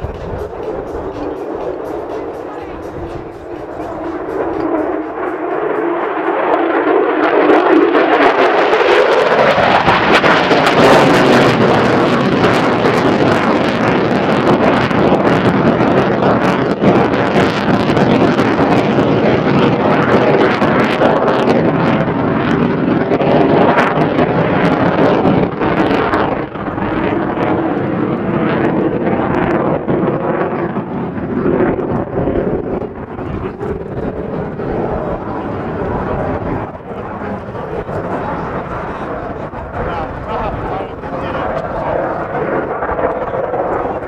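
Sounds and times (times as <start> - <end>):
jet engine crackling roar: 0.0 - 44.0.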